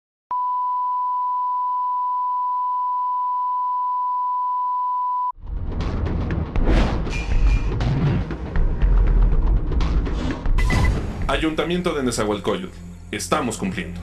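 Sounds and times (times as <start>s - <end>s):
ident music with low booms: 5.4s - 14.0s.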